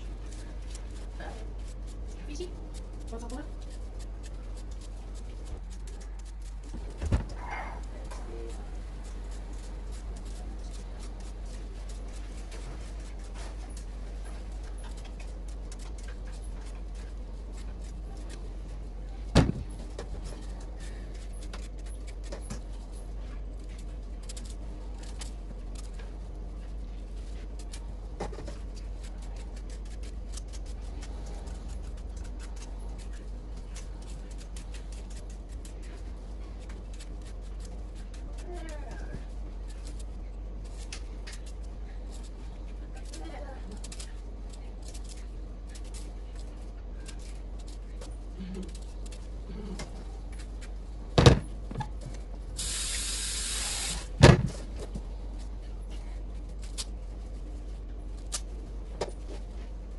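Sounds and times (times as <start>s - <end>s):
knife scraping potato skin: 0.0s - 13.9s, 27.2s - 47.8s
low hum: 0.0s - 59.9s.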